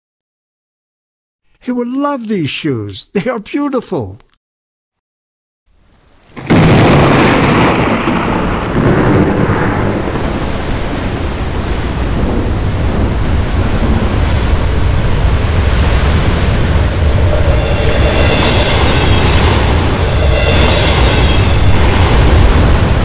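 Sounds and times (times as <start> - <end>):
heavy rain: 5.7 - 23.0
low rumble of thunder: 6.3 - 23.0
loud thunderclap: 6.4 - 23.0.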